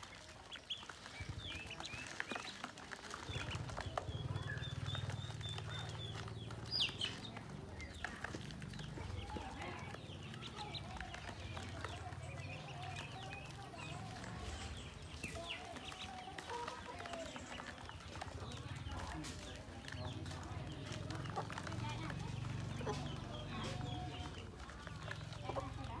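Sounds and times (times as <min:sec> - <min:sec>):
ducklings peeping: 0:00.0 - 0:26.0.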